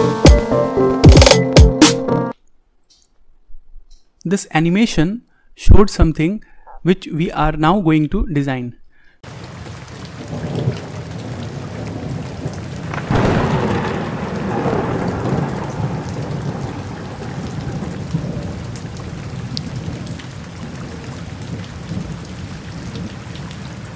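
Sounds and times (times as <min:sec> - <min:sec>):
rain falling on foliage: 0:09.2 - 0:23.9
thunder rolling: 0:10.2 - 0:23.6.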